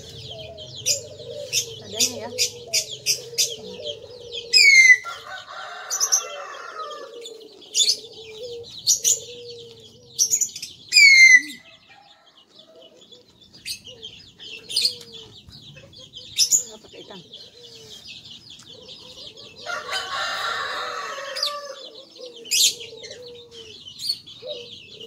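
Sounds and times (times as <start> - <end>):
chickens clucking: 0.0 - 25.0
small birds chirping: 0.0 - 25.0
rooster crowing: 0.2 - 8.6, 19.1 - 22.2.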